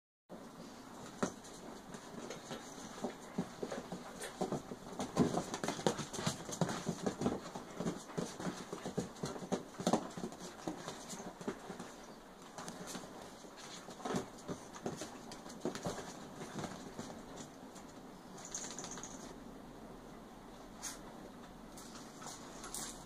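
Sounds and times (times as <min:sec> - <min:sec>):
paws scuffling on fabric: 0:01.0 - 0:18.0.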